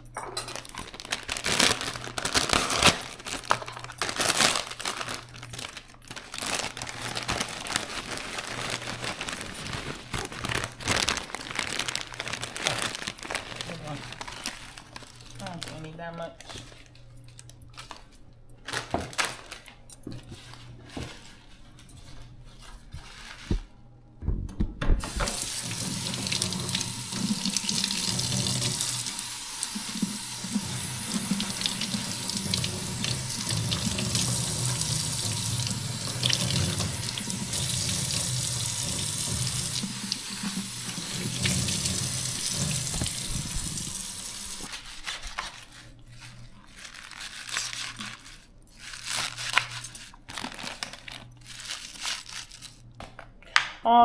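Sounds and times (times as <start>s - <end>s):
tap water running into sink: 25.0s - 44.7s.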